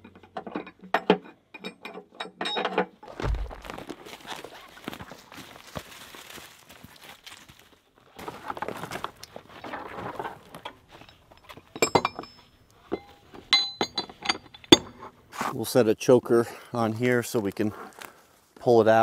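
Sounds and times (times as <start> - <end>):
footsteps crunching through debris: 3.0 - 11.8
ringing metal clinks: 11.0 - 15.0.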